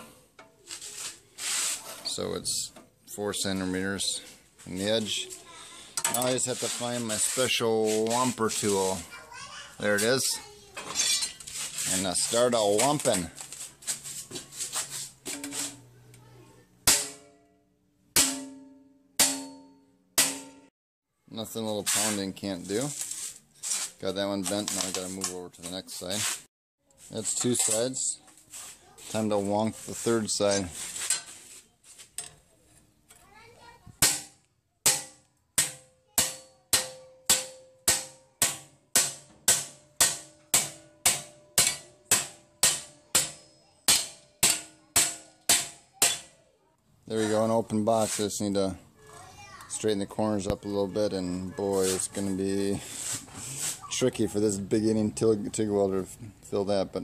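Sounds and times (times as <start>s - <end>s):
hammer pounding sheet steel: 16.8s - 17.4s, 18.2s - 20.7s, 34.0s - 46.3s.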